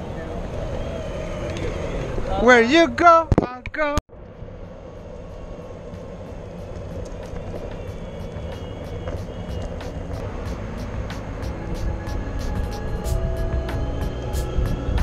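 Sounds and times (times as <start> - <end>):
wheels rolling on pavement: 0.0 - 3.2, 4.1 - 15.0
wind: 0.0 - 15.0
faint regular ticks: 6.0 - 10.2.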